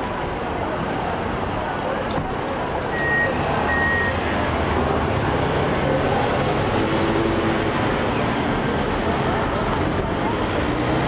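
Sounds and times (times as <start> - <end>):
city street traffic: 0.0 - 11.0
short high beeps: 3.0 - 4.2.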